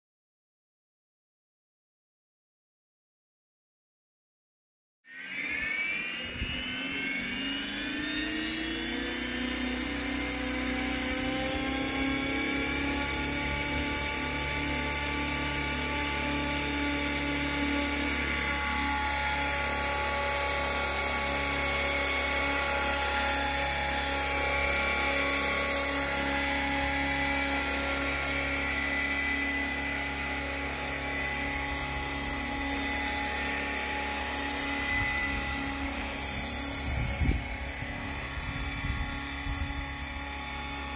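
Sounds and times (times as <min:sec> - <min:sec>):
rc helicopter motor whine: 0:05.1 - 0:40.9
rotor whir: 0:05.1 - 0:40.9.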